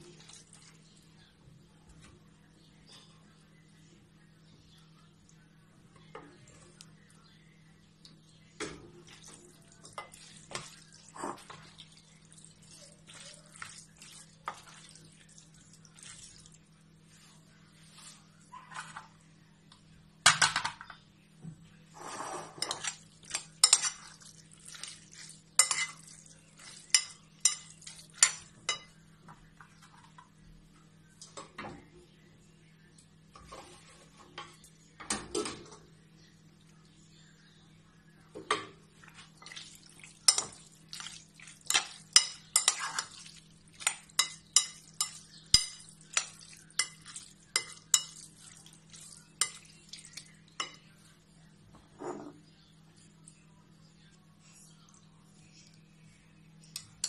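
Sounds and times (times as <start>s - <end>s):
spoon clinking in glass bowl: 22.6s - 29.0s, 40.2s - 50.8s.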